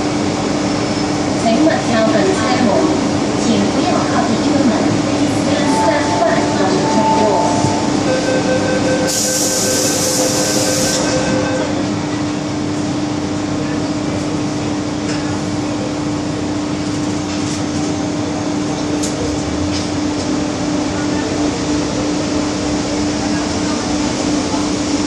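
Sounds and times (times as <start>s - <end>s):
train hum and rumble: 0.0s - 25.0s
door warning tone: 5.6s - 11.6s.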